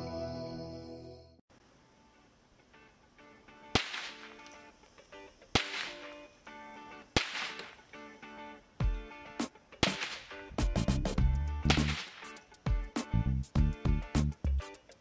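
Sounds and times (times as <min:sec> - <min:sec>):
rifle shots cracking: 0:03.7 - 0:04.6, 0:05.5 - 0:06.3, 0:07.1 - 0:07.8, 0:09.8 - 0:10.4, 0:11.7 - 0:12.3.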